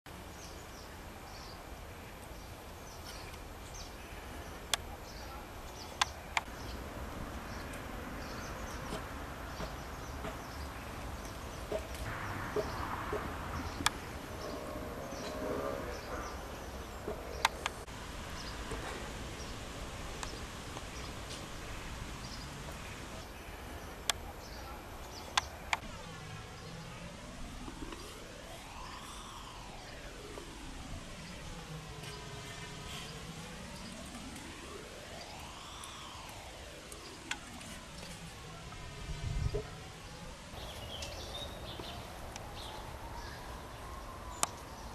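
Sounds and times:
low background noise: 0:00.1 - 0:44.9
small birds chirping: 0:00.3 - 0:30.5, 0:35.1 - 0:44.9
sharp clicks: 0:25.2 - 0:25.9.

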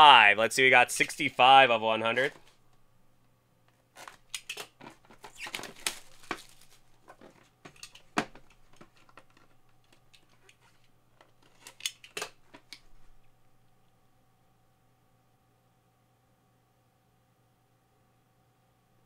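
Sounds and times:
plastic wrap crackling: 0:03.9 - 0:09.5.

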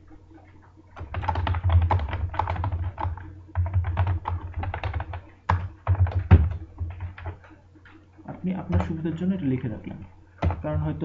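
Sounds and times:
fast typing on keyboard: 0:01.0 - 0:07.5, 0:10.4 - 0:11.0.

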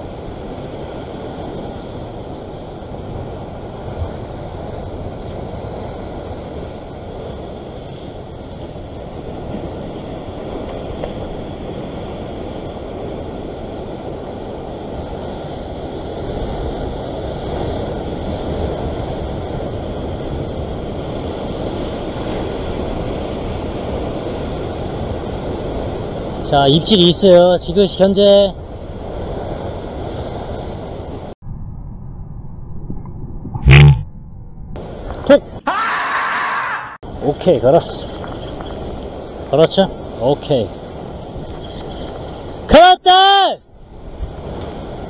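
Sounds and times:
wind on microphone: 0:00.0 - 0:26.5, 0:37.0 - 0:42.7, 0:43.6 - 0:45.0
sea surf washing against rocks: 0:00.0 - 0:31.4.

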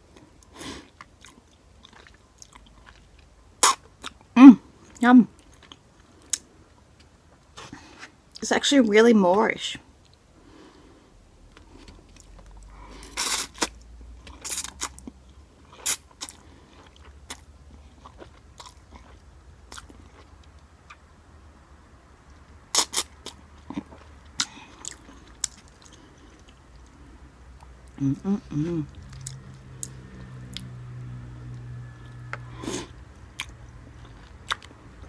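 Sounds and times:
sharp mouth sounds: 0:03.6 - 0:04.5.

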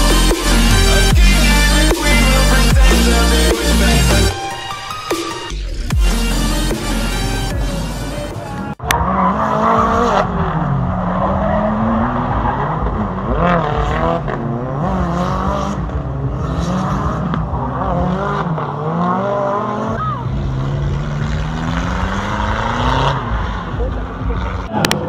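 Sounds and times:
electronic music: 0:00.0 - 0:14.2
car engines revving high: 0:00.0 - 0:25.0.

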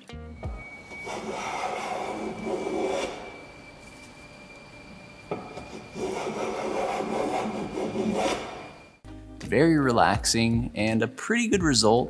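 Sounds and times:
hand plane shaving wood: 0:00.6 - 0:03.5, 0:05.5 - 0:08.7.

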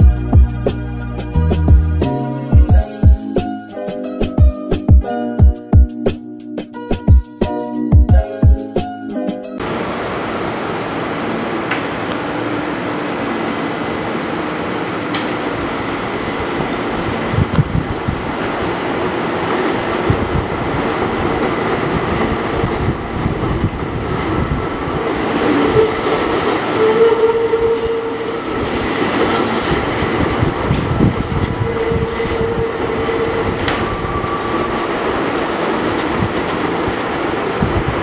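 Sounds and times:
subway train wheels rumbling: 0:00.0 - 0:38.0
wheels squealing on curved rail: 0:25.0 - 0:35.8.

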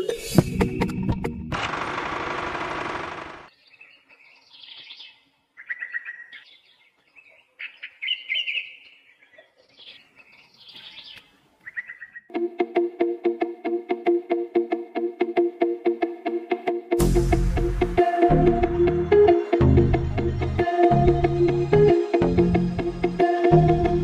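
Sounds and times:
music: 0:00.0 - 0:01.6, 0:12.3 - 0:24.0
birds chirping and trilling: 0:03.5 - 0:12.3.

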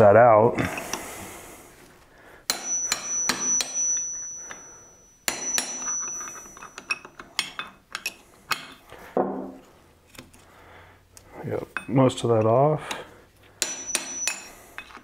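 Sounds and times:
high metallic ringing: 0:02.5 - 0:08.2, 0:11.7 - 0:12.1, 0:13.6 - 0:15.0
hammer striking chisel on metal: 0:02.5 - 0:08.8, 0:13.6 - 0:15.0
light metal taps and clinks: 0:02.5 - 0:08.8, 0:11.7 - 0:13.0, 0:13.6 - 0:15.0.

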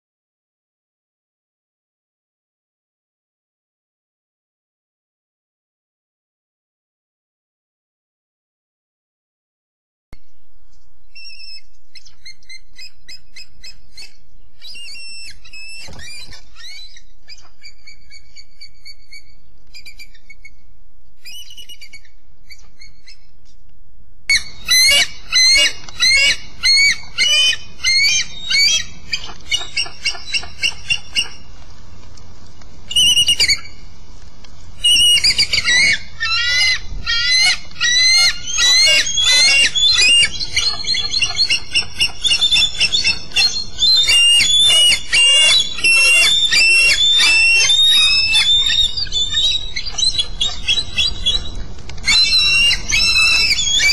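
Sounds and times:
distant eagle piping calls: 0:10.7 - 0:23.4, 0:24.3 - 0:31.5, 0:32.9 - 0:33.9, 0:34.8 - 0:53.9
eagle high-pitched chittering: 0:24.3 - 0:31.5, 0:32.9 - 0:33.8, 0:34.8 - 0:53.9.

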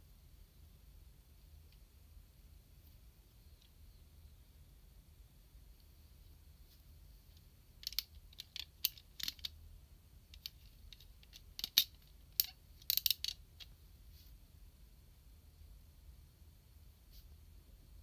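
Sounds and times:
plastic figure parts clicking: 0:07.8 - 0:09.6, 0:10.3 - 0:13.7.

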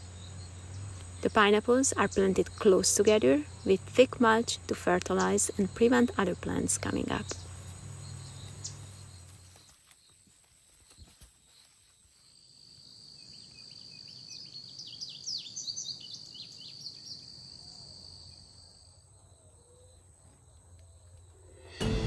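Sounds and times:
insect high-pitched drone: 0:00.0 - 0:10.0
bird chirping calls: 0:13.2 - 0:17.9.

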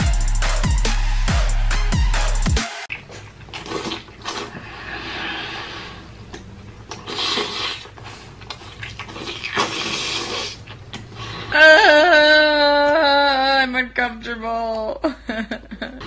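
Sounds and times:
wet chewing: 0:02.9 - 0:04.8, 0:06.2 - 0:11.4
heavy noisy breaths: 0:04.5 - 0:06.2.

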